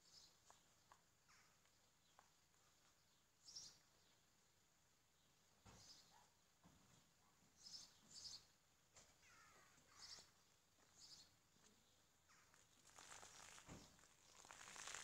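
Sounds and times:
small bird chirping: 3.4 - 4.2, 7.6 - 8.6, 9.2 - 15.0.

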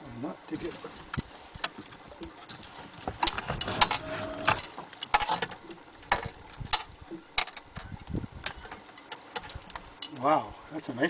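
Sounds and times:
fish being handled and unhooked: 0.6 - 10.3.

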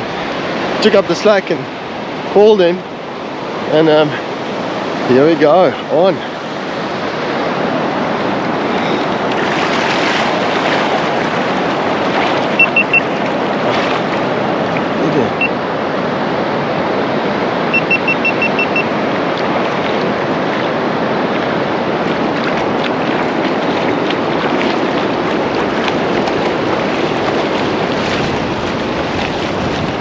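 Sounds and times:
surf washing on beach: 0.0 - 30.0
wind buffeting microphone: 4.3 - 30.0
short high beeps: 12.6 - 13.2, 15.3 - 15.6, 17.7 - 18.9.

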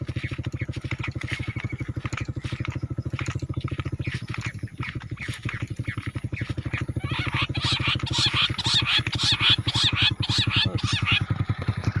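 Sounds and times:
low rapid pulsing: 0.0 - 12.0
quail chirping whistles: 2.4 - 11.3.

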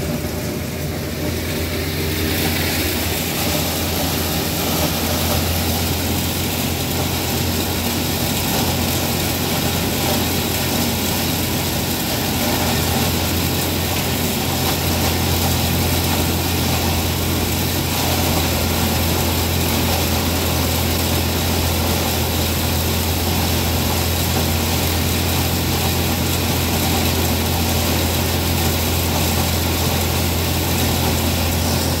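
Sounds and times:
grinder mixer drone: 0.0 - 32.0.

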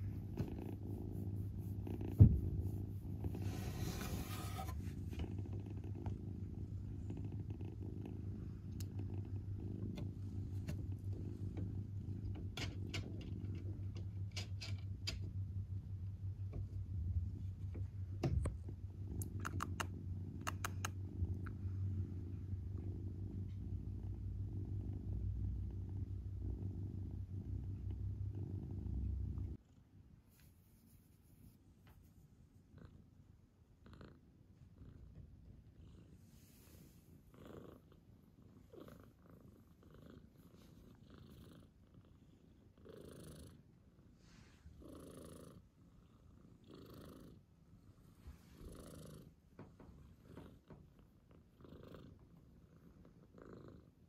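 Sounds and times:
kitten purring: 0.0 - 29.9, 32.6 - 54.0
faint clicks: 19.2 - 21.6
fur rustling under stroking hand: 30.3 - 32.2.

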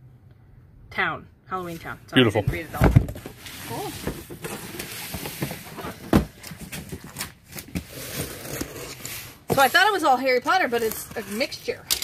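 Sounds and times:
cardboard boxes rustling and scraping: 2.4 - 11.8.

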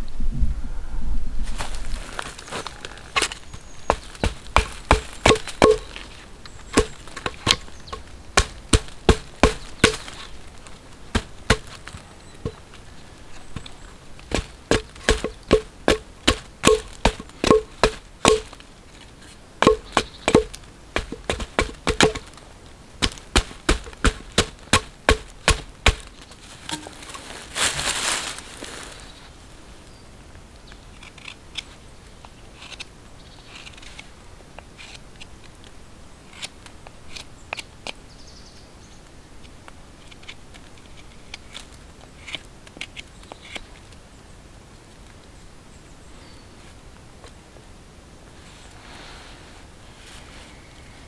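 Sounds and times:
hatchet chopping wood: 3.2 - 6.0, 6.7 - 10.2, 11.1 - 12.6, 14.3 - 18.6, 19.6 - 22.4, 23.0 - 26.1.

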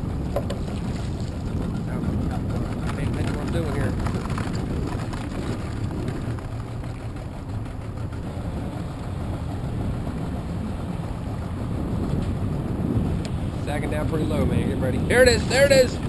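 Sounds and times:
boat motor rumbling: 0.0 - 16.0.

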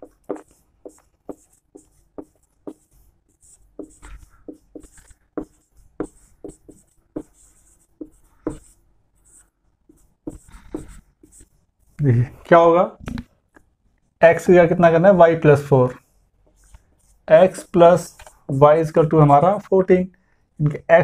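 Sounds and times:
marker pen squeaking on whiteboard: 0.0 - 12.0.

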